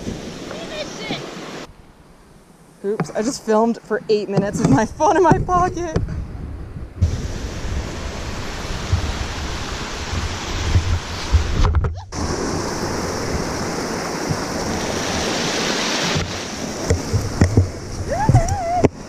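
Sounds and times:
creek rushing over rocks: 0.0s - 1.7s, 7.0s - 19.0s
wind buffeting microphone: 4.3s - 19.0s.

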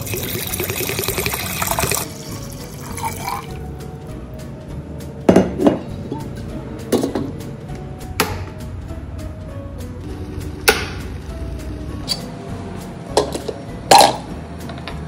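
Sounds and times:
water pouring into kettle: 0.0s - 3.6s.

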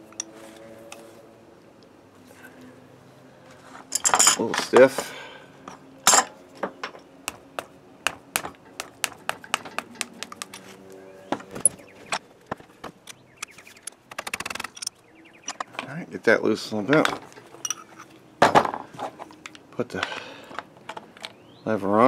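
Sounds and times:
metallic clinks and knocks: 9.5s - 10.8s, 17.0s - 18.1s.

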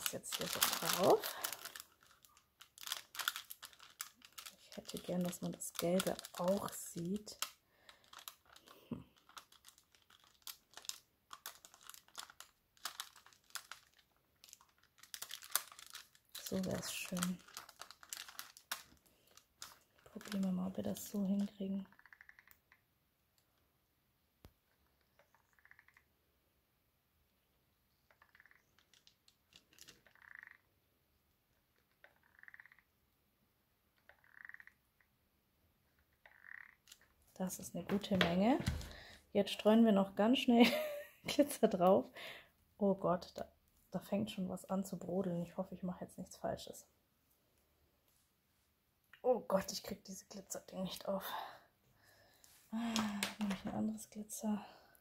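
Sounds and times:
paper crinkling: 0.0s - 21.6s, 28.8s - 30.1s.

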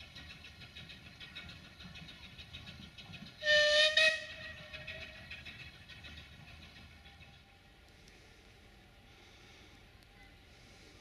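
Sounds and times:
steam locomotive whistle: 3.4s - 5.2s.

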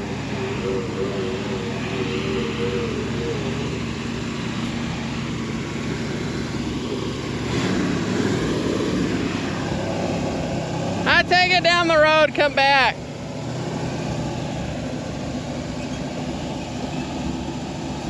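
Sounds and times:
high whine: 0.0s - 13.1s
truck engine idling: 0.0s - 18.0s.

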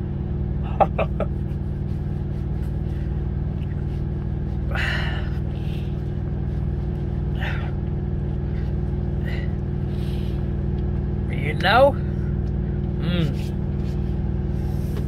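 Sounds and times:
idling diesel truck engine: 0.0s - 15.0s
hands rubbing face and hair: 1.2s - 4.6s.

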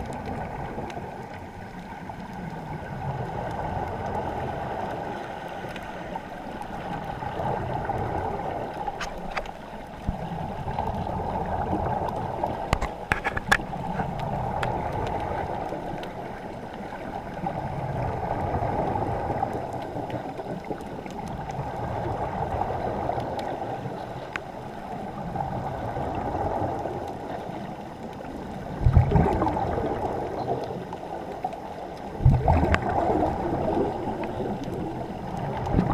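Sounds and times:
muffled underwater water rush: 0.0s - 35.9s.

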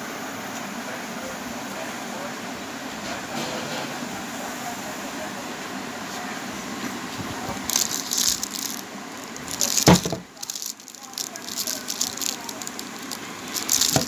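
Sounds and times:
rustling and handling noise: 6.1s - 14.0s.

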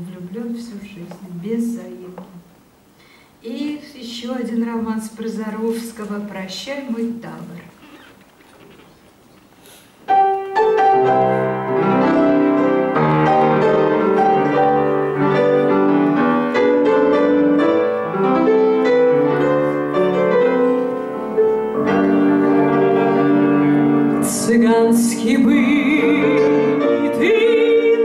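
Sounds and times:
piano playing: 10.0s - 28.0s.

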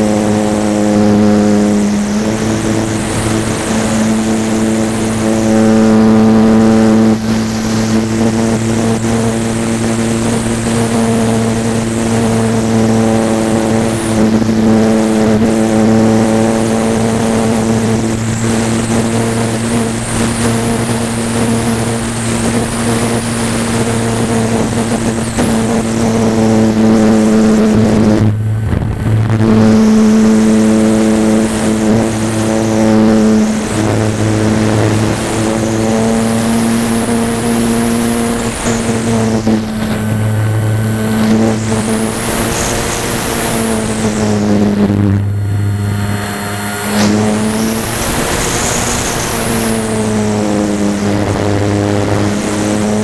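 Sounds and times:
electric motor and propeller: 0.0s - 53.0s
rush of air: 17.0s - 50.4s.

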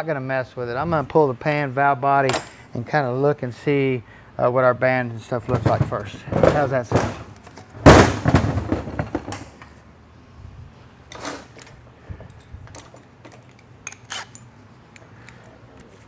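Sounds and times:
tools clicking on steel workbench: 11.1s - 16.0s.

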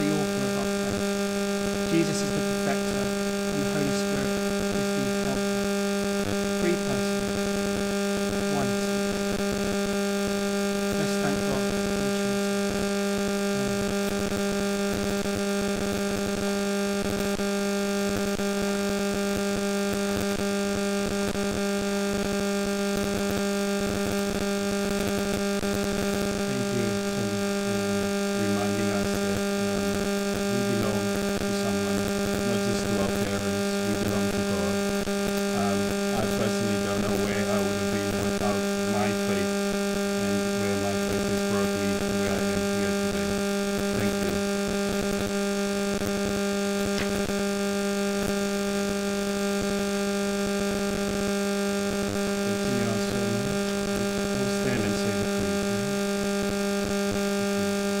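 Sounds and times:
faint muffled voice: 0.0s - 1.0s, 1.9s - 5.4s, 6.6s - 7.1s, 8.5s - 8.9s, 11.0s - 11.7s, 13.5s - 13.8s, 26.4s - 29.8s, 30.5s - 34.8s, 35.5s - 39.5s, 40.2s - 43.3s, 43.9s - 44.5s, 52.5s - 53.6s, 54.2s - 55.9s
electrical mains hum: 0.0s - 58.0s.

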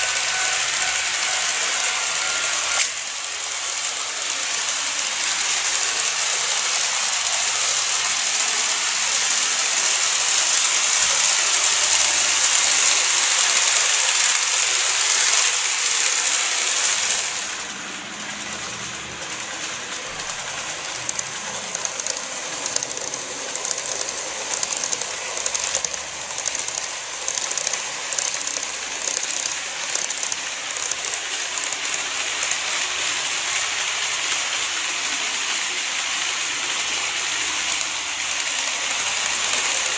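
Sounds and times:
model train running on track: 0.0s - 39.9s
irregular clicking: 19.2s - 32.6s.

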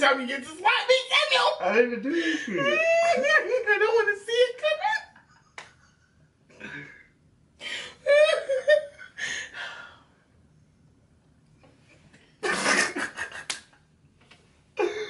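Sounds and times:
man and woman laughing: 2.2s - 4.0s, 8.0s - 9.2s, 12.4s - 13.8s.

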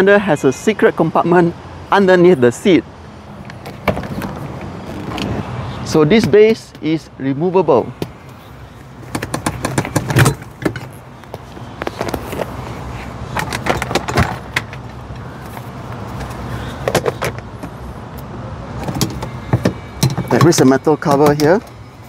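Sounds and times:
clicks and clatter of car seat parts: 3.4s - 5.4s, 9.0s - 17.8s, 18.8s - 21.8s.

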